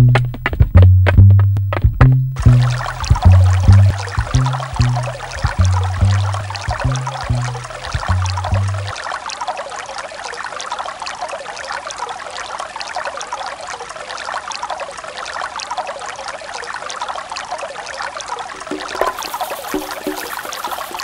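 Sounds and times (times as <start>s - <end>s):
water trickling: 1.8s - 11.7s, 17.1s - 21.0s.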